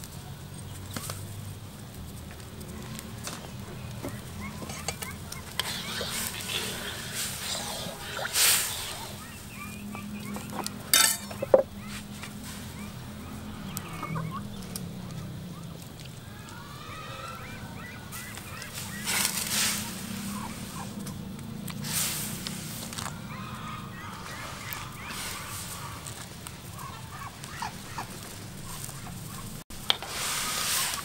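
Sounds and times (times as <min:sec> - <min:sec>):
birds calling: 0:00.3 - 0:31.0
water boiling: 0:05.4 - 0:11.6.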